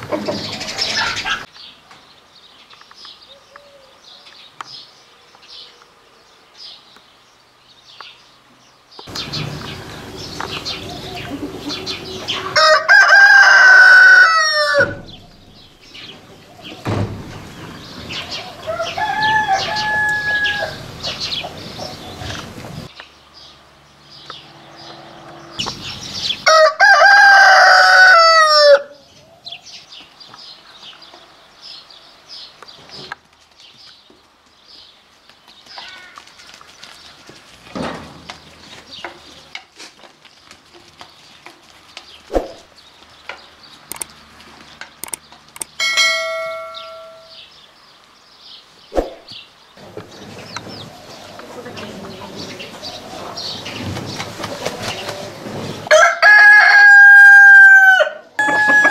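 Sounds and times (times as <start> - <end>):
hens clucking: 9.1 - 15.4, 17.4 - 22.9, 49.8 - 55.9
roosters crowing: 9.1 - 22.9, 24.3 - 29.6, 49.8 - 58.9.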